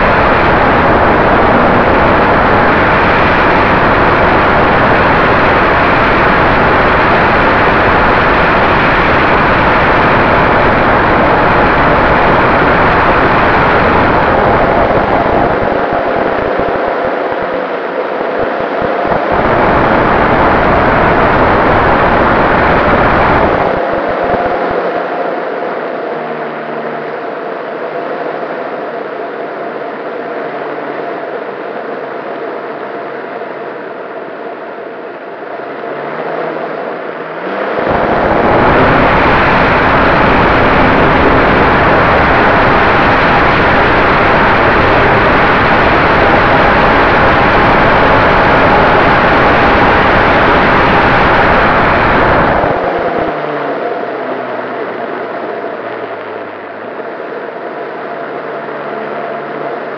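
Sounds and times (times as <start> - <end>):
wind rushing over microphone: 0.0 - 26.1, 36.8 - 58.1.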